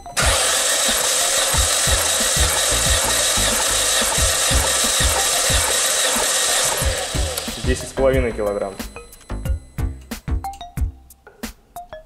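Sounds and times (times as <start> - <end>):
starter motor cranking engine: 0.2 - 8.7.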